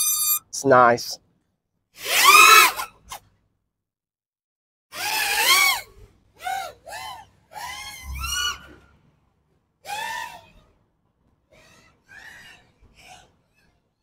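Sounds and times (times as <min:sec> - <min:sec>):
quadcopter motors whining: 0:02.0 - 0:02.8.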